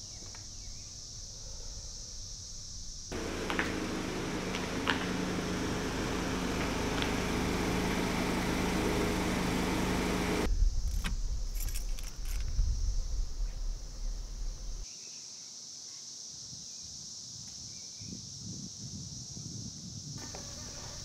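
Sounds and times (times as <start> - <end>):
car engine humming: 3.1 - 10.5
low engine rumble: 3.1 - 10.5
light metallic clicks and jingles: 11.5 - 12.6.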